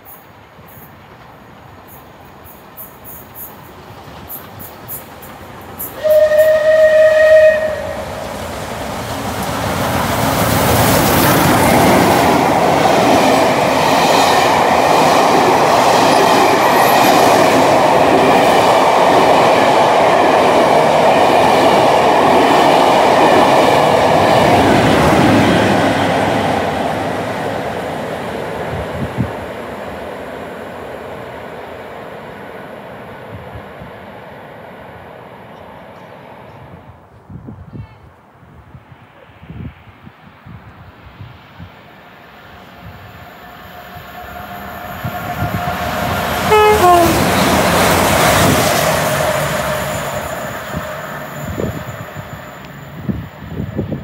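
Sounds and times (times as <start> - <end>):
train horn warning note: 6.0 - 8.2, 46.4 - 47.6.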